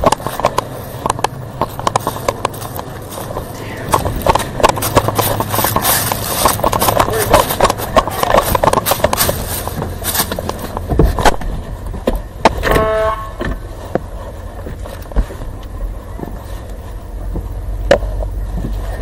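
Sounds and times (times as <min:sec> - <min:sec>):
camera rubbing against clothing: 0:00.0 - 0:11.8
car engine hum: 0:00.0 - 0:19.0.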